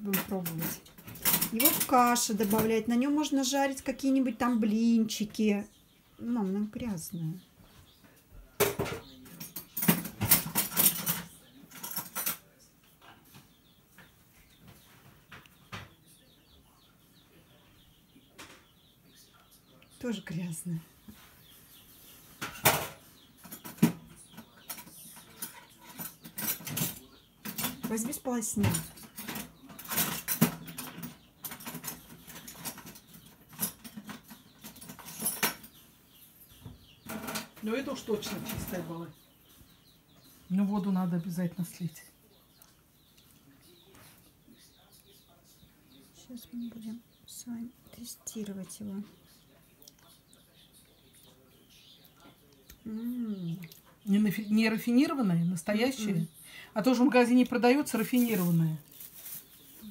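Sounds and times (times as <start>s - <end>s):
kitchen clinks and rustles: 0.1s - 2.8s, 8.6s - 12.5s, 22.4s - 35.8s.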